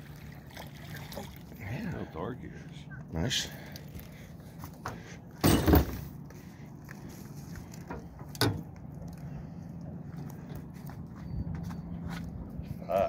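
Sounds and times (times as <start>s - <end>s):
landing net thumping metal boat: 4.8s - 6.1s.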